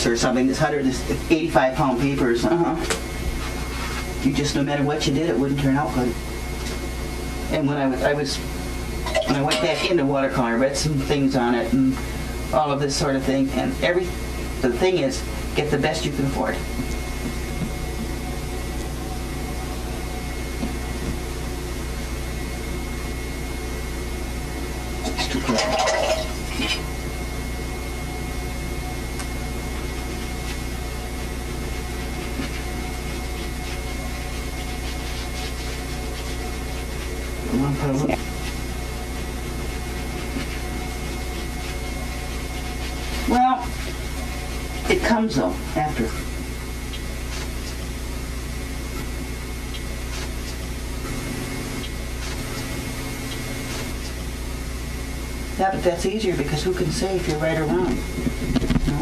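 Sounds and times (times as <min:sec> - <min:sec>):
constant low hum: 0:00.0 - 0:59.0
faint high whine: 0:00.0 - 0:59.0
camcorder tape hiss: 0:26.2 - 0:59.0.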